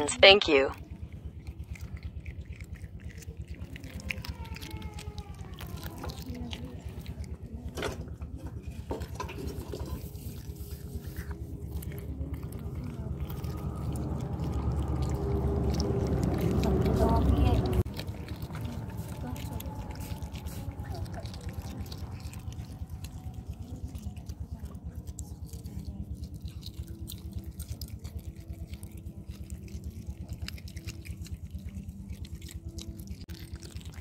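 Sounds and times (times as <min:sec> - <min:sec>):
cats chewing fish: 0:00.5 - 0:34.0
cat growling: 0:01.4 - 0:07.7, 0:10.6 - 0:23.7.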